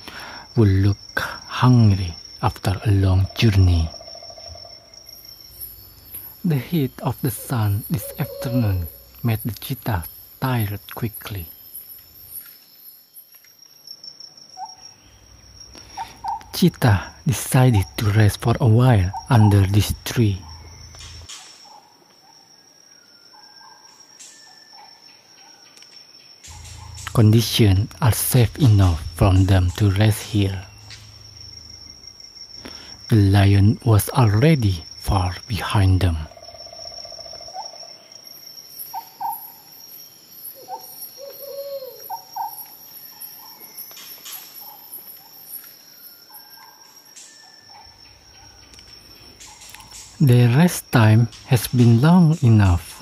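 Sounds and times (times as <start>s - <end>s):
insects droning: 0.0s - 53.0s
bird chirps: 1.9s - 22.4s, 23.0s - 53.0s
short chirping calls: 3.1s - 13.8s, 23.4s - 33.4s.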